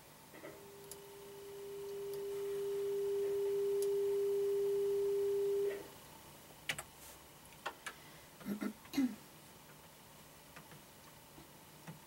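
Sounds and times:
electronic pure tone: 0:00.4 - 0:05.8.

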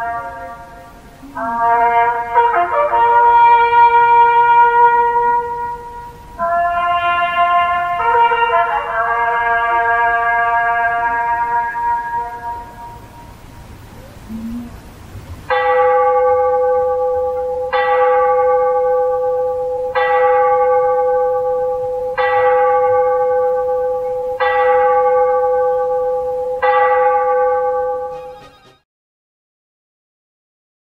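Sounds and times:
tower bell tolling: 0:15.5 - 0:28.8.

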